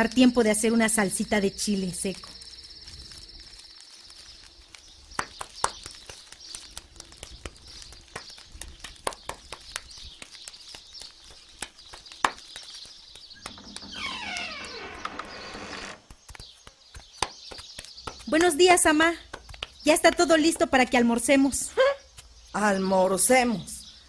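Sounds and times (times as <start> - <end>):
night insects chirring: 0.0 - 7.0.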